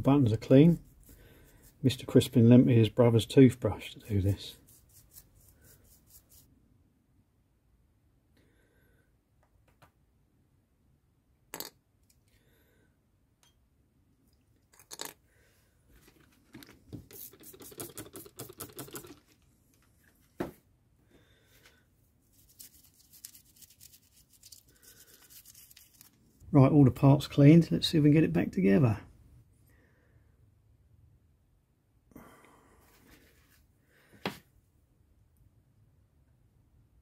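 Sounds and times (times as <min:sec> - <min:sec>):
toothbrush scrubbing: 0:00.4 - 0:02.2, 0:04.2 - 0:06.5, 0:17.1 - 0:19.2, 0:22.3 - 0:26.2.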